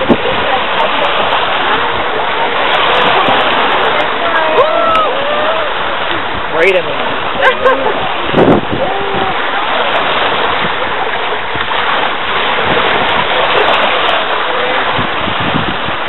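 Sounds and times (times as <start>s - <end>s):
small waves washing onto sand: 0.0s - 16.0s.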